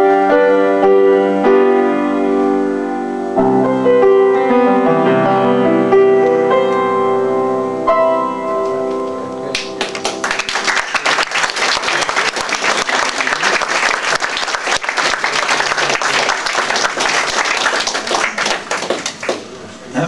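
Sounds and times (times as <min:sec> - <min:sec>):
audience applauding: 0:09.5 - 0:19.7.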